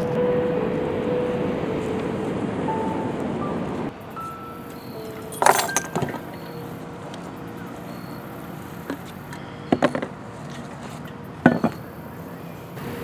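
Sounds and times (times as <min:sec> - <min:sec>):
objects clattering on wooden table: 0:05.4 - 0:06.3, 0:09.7 - 0:10.1, 0:11.4 - 0:11.8.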